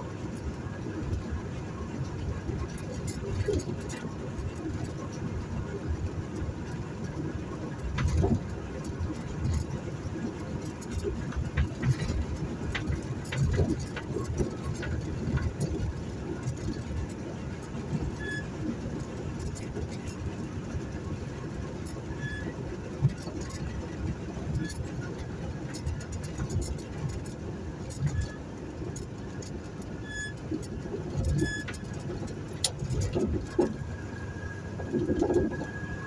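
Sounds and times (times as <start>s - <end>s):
car engine running: 0.0s - 36.0s
road noise inside car: 0.0s - 36.0s
light clicks and rattles: 0.3s - 34.0s.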